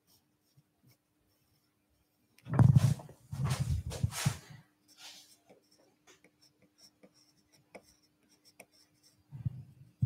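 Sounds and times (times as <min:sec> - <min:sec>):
faint steady hum: 0:00.0 - 0:10.0
pencil scratching on board: 0:04.9 - 0:09.6.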